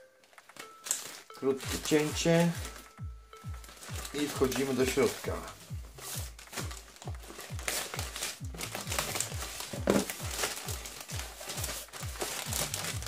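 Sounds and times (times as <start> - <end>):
music with low beat: 0.0 - 13.0
plastic bag crinkling: 0.2 - 13.0
scissors cutting plastic: 6.0 - 13.0.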